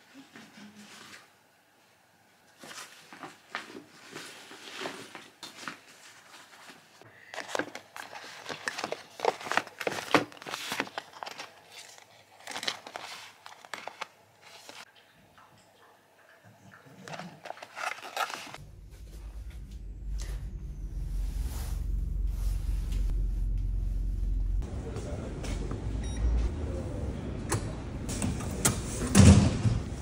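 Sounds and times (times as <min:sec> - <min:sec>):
plastic pouch crinkling: 0:07.4 - 0:14.9, 0:17.1 - 0:18.6.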